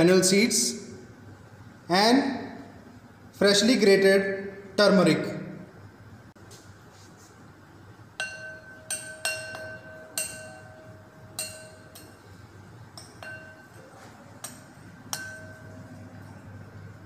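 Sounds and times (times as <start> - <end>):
metal spoon clinking glass bowl: 8.2 - 16.4
glass bowl ringing: 8.2 - 16.6.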